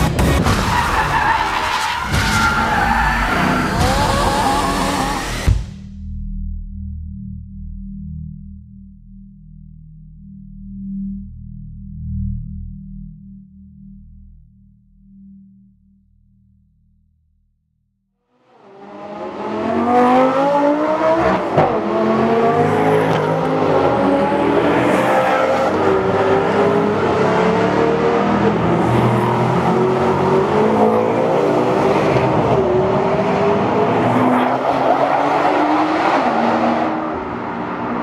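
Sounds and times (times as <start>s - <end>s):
sports car engines revving: 2.0s - 5.5s, 18.5s - 38.0s.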